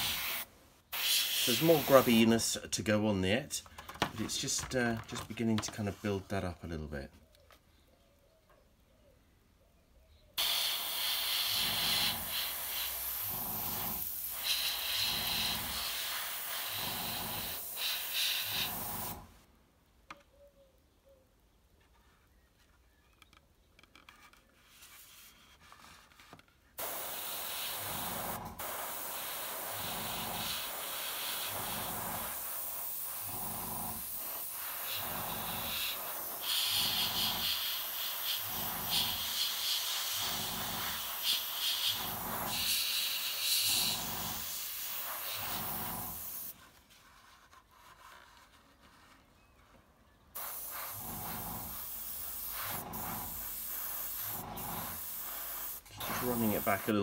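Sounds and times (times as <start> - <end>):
airbrush spraying hiss: 0.0 - 2.4, 10.4 - 19.3, 26.8 - 46.6, 50.4 - 57.0.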